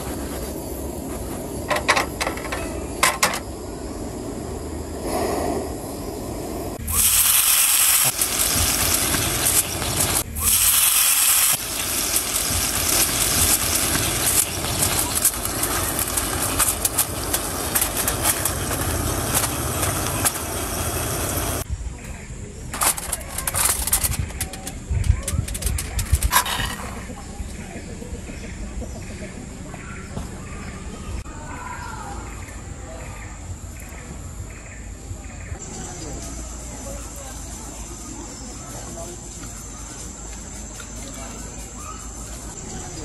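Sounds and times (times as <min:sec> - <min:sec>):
water sizzling in hot skillet: 0:06.8 - 0:21.7
aluminium foil crinkling: 0:06.9 - 0:21.6, 0:22.8 - 0:26.8.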